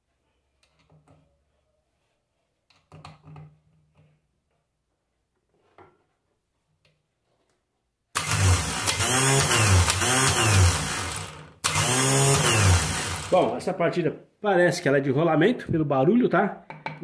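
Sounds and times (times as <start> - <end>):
starter motor whining: 8.2 - 13.6.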